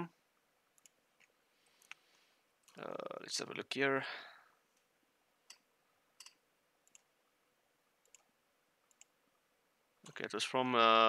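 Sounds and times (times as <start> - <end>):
faint computer mouse clicks: 0.8 - 2.0, 8.9 - 9.1.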